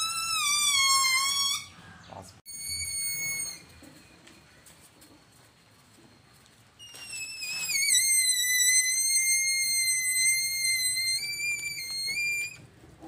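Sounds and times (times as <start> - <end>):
air squealing out of balloon: 0.0 - 1.8, 2.5 - 3.7, 6.8 - 12.6.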